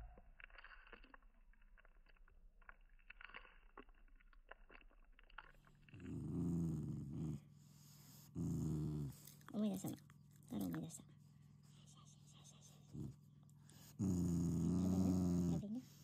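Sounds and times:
dog growling: 5.9s - 9.9s, 12.8s - 16.0s.

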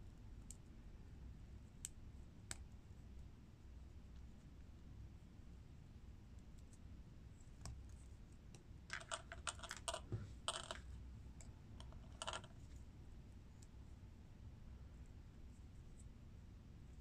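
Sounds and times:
plastic bricks clicking: 8.9s - 10.9s, 11.8s - 12.5s.

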